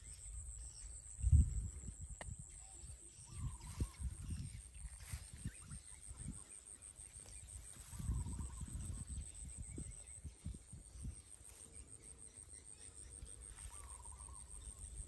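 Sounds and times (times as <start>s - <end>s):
rustling in tall grass: 3.3s - 9.8s, 13.3s - 14.8s.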